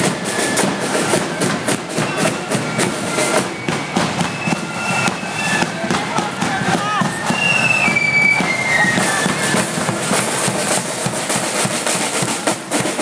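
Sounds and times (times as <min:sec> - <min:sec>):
marching snare and bass drums: 0:00.0 - 0:13.0.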